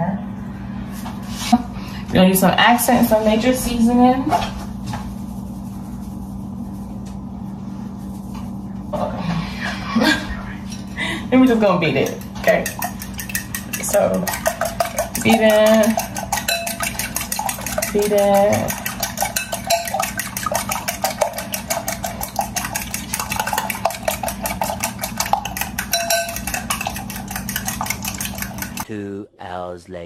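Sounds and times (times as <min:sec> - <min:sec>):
fork beating eggs in glass bowl: 0:11.4 - 0:28.9.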